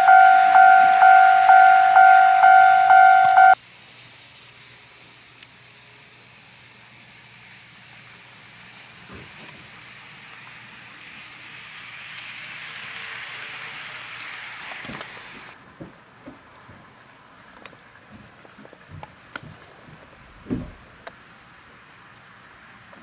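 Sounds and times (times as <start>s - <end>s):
model train whirring on track: 0.0s - 15.6s, 21.0s - 23.0s.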